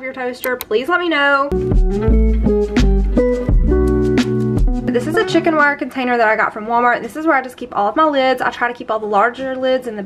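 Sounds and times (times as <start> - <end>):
pitched instrumental notes: 1.5 - 6.0
strong bass line: 1.6 - 5.8.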